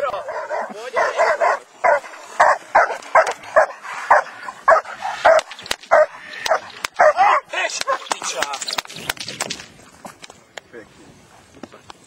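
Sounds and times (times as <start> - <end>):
dog barking: 0.1 - 8.0.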